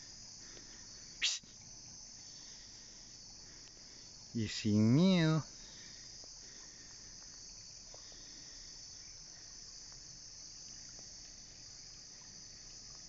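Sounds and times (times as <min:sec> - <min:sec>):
night insects chirping: 0:00.0 - 0:13.0
faint ticks: 0:03.2 - 0:04.0, 0:06.0 - 0:13.0.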